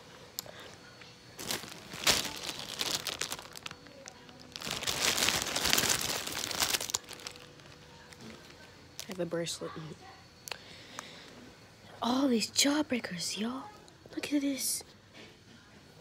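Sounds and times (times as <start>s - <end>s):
plastic bag crinkling: 1.4s - 9.2s.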